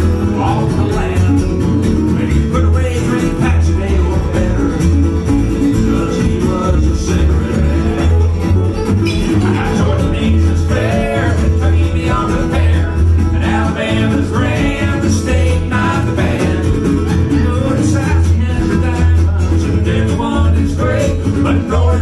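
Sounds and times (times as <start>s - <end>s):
acoustic guitar: 0.0s - 22.0s
resonator guitar: 0.0s - 22.0s
upright bass: 0.0s - 22.0s
two people singing harmony: 5.5s - 8.3s, 9.4s - 22.0s.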